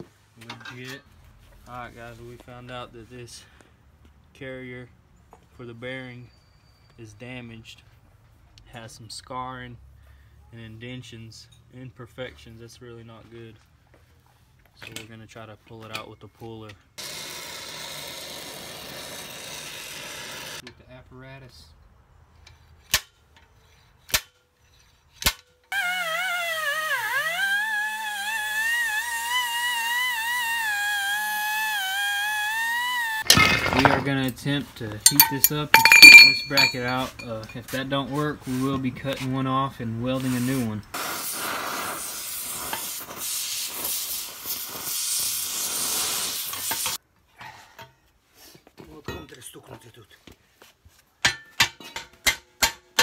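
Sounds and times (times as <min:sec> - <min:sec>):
slide hammer metal clanks: 0:33.3 - 0:34.4, 0:35.1 - 0:37.6, 0:51.2 - 0:53.0
faint metallic clinks: 0:35.0 - 0:37.6
torch flame hissing: 0:41.0 - 0:47.0.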